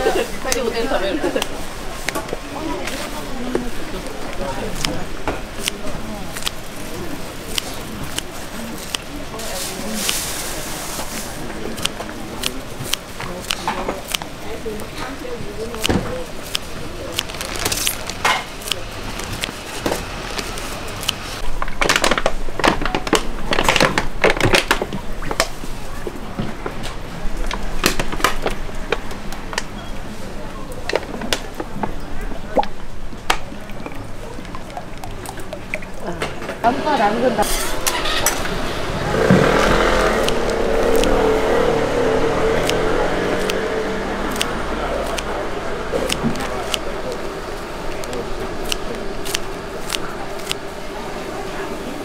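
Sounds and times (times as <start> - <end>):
vehicle engine humming: 0.0 - 21.7, 31.2 - 52.0
hands tossing noodles rustling: 5.6 - 14.2
utensils clinking: 33.7 - 38.7.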